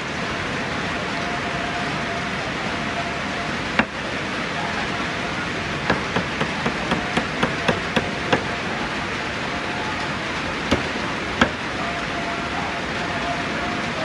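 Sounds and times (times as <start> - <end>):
rain hiss: 0.0 - 14.0
sharp knocks: 5.9 - 8.5, 10.7 - 11.6.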